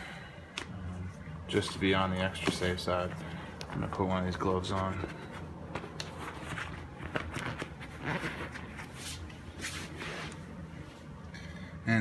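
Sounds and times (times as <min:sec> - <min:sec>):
rubber glove rustling: 0:03.1 - 0:11.1.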